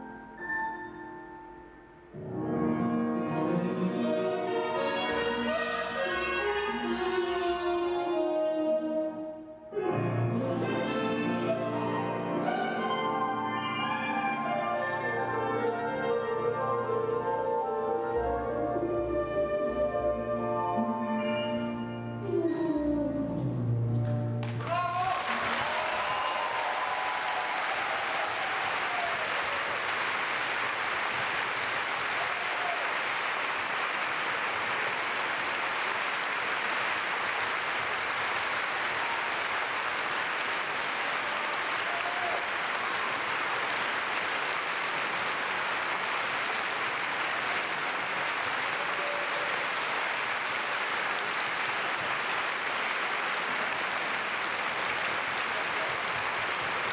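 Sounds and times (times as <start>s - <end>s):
audience applauding: 24.4s - 56.9s.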